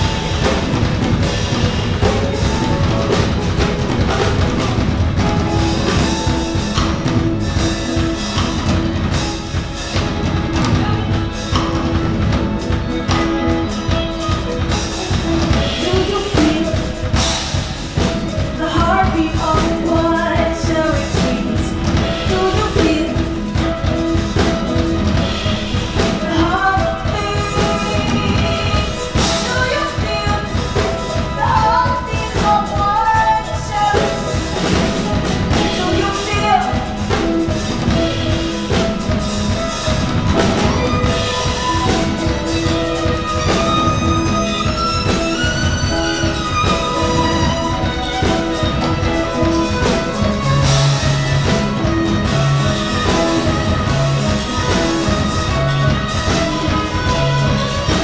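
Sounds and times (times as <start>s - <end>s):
drum kit with cymbals and snare: 0.0s - 58.0s
guitar: 0.0s - 58.0s
woman singing: 15.3s - 24.0s, 25.4s - 39.7s.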